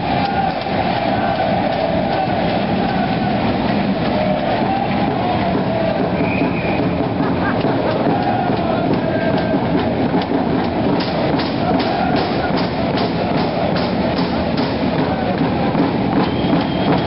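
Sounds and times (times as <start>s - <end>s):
crowd chanting: 0.0s - 17.0s
steady rhythmic beat: 0.0s - 17.0s.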